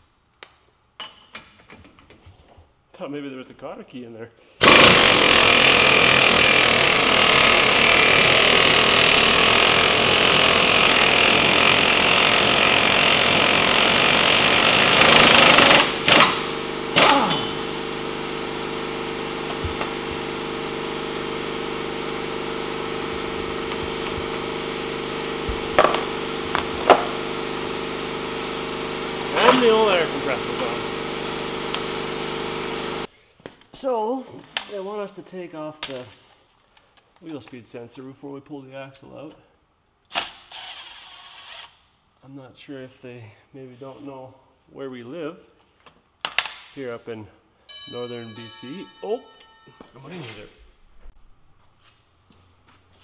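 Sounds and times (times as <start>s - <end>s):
impact wrench hammering: 4.6s - 17.8s, 22.7s - 27.3s
steady hum: 15.6s - 33.1s.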